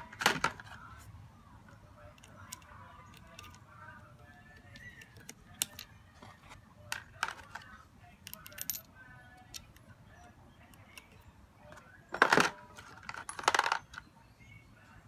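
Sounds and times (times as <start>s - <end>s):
small metal parts clinking: 2.1s - 6.2s, 6.9s - 9.9s, 12.1s - 14.1s.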